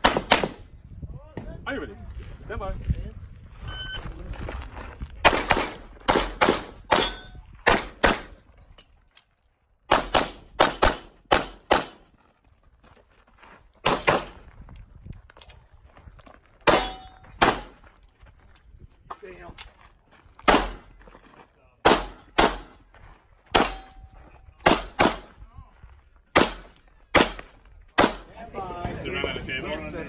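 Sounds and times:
pistol shots: 0.0s - 0.6s, 5.2s - 8.4s, 9.9s - 12.0s, 13.8s - 14.4s, 16.7s - 17.8s, 20.4s - 20.9s, 21.8s - 22.8s, 23.5s - 24.0s, 24.6s - 25.3s, 26.3s - 28.3s
steel targets clanging: 7.0s - 7.4s, 16.7s - 17.2s.

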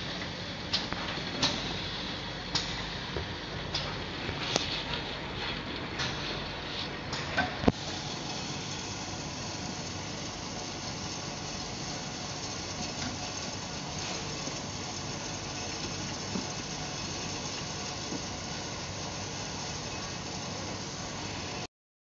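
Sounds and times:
blower hissing: 7.6s - 21.7s.

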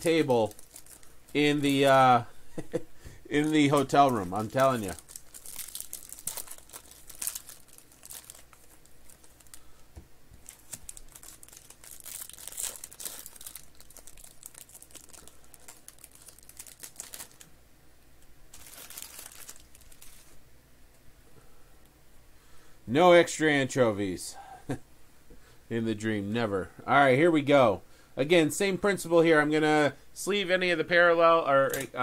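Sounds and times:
foil wrappers crinkling and tearing: 0.0s - 2.2s, 3.3s - 9.7s, 10.4s - 17.5s, 18.5s - 20.4s.

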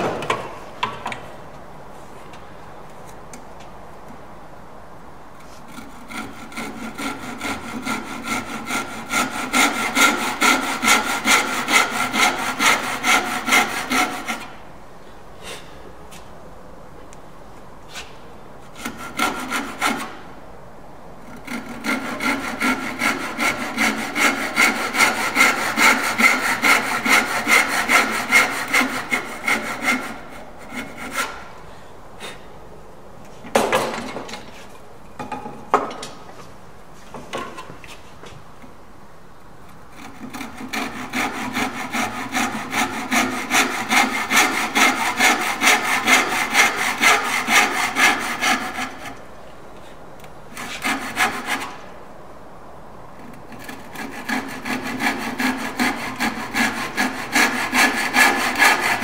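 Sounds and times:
hand saw cutting wood: 5.4s - 14.6s, 17.9s - 20.3s, 21.2s - 31.6s, 39.9s - 49.3s, 50.5s - 51.9s, 53.3s - 59.0s.

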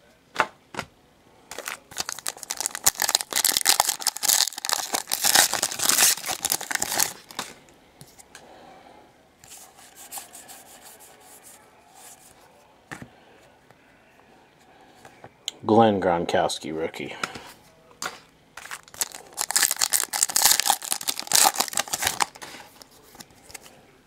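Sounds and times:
cards rustling and clicking: 1.5s - 7.6s, 18.0s - 23.8s
plastic wrapper tearing and crinkling: 1.5s - 7.6s, 18.6s - 22.8s.

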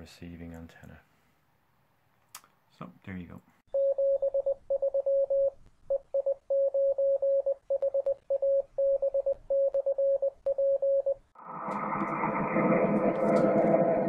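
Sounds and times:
morse code beeps: 3.7s - 11.2s
fuller louder sound: 11.4s - 14.0s.

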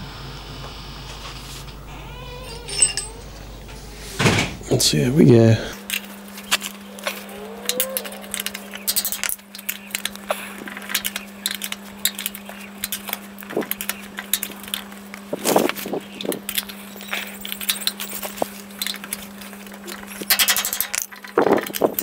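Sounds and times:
wrench clicking on metal bolts: 7.7s - 14.9s, 17.4s - 22.0s.

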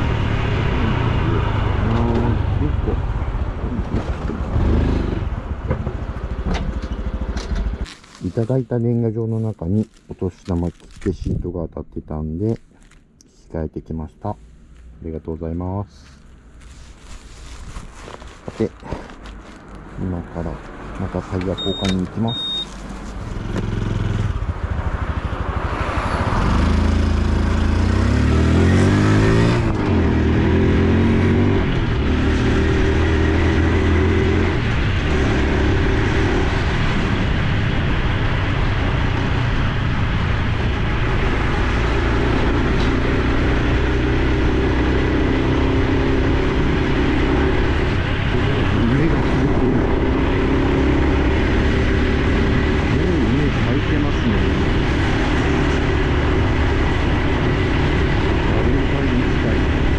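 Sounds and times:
motorcycle engine accelerating: 0.0s - 8.2s, 21.6s - 59.9s
wind and road noise: 0.0s - 59.9s.

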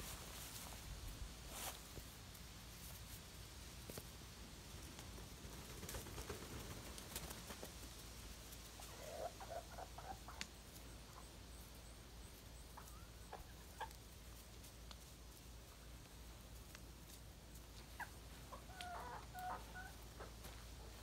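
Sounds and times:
chickens clucking: 8.6s - 21.0s.

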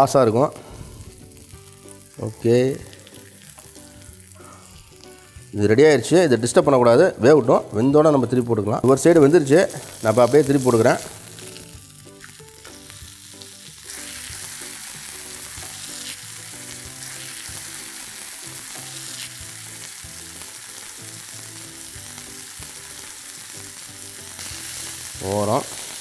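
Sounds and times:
fish sizzling in oil: 0.6s - 5.7s, 9.0s - 26.0s.

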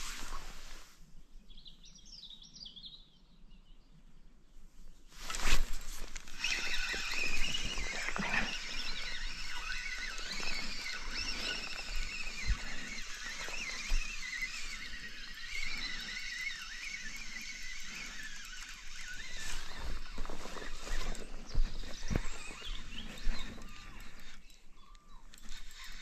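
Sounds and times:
fishing reel gears whining: 6.0s - 24.6s.

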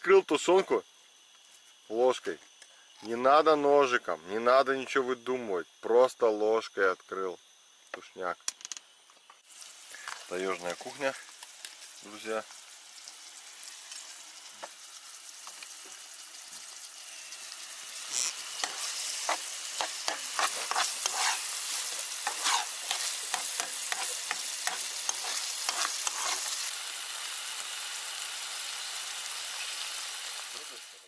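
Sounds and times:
onion sizzling in frying pan: 9.4s - 31.0s.

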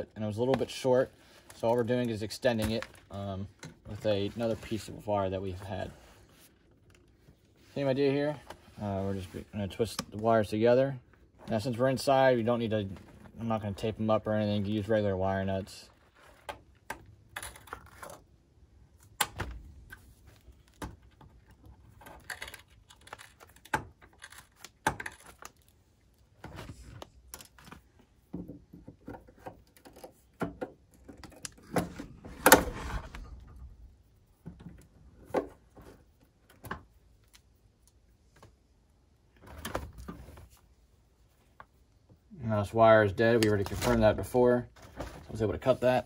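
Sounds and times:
hands handling wire and tools: 0.4s - 10.3s, 15.9s - 42.2s.

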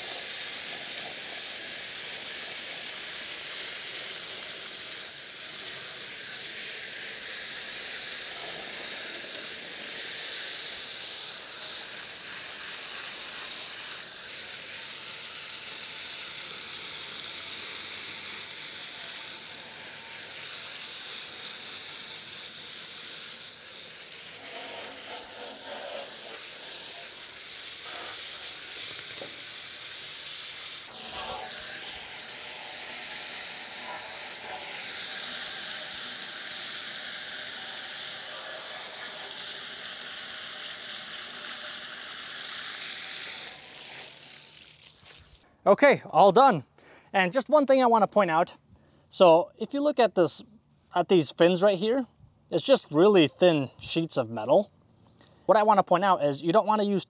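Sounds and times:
hose water spray hissing: 0.0s - 45.4s.

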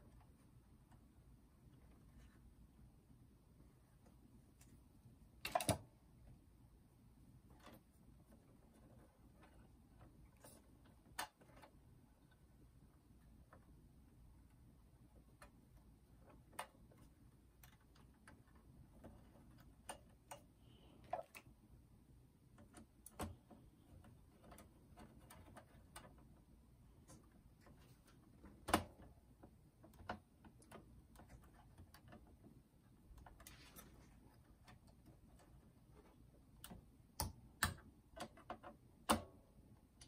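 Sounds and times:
screwdriver clicks and taps: 36.6s - 39.3s.

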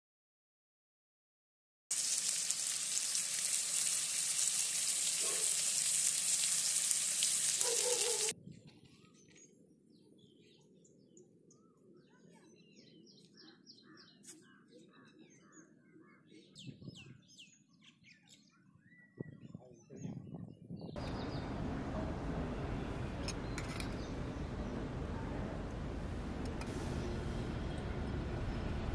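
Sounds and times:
fish sizzling in hot oil: 1.9s - 8.3s
birds chirping faintly: 2.6s - 25.4s.

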